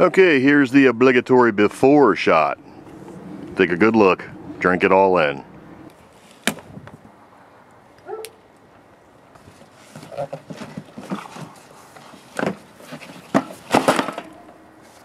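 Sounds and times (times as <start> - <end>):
cardboard scraping and rustling: 9.4 - 15.0.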